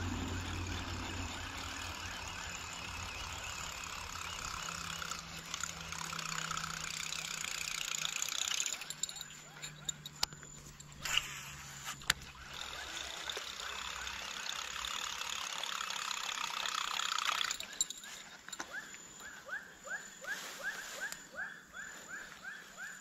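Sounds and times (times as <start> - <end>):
dense buzzing animal chorus: 0.0 - 11.6, 12.2 - 19.1.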